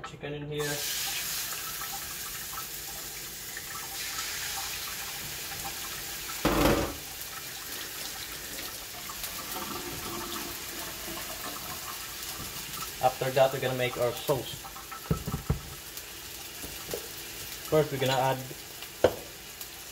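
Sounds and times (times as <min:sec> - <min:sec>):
chicken sizzling in a frying pan: 0:00.6 - 0:19.9
loud thump: 0:06.5 - 0:07.0.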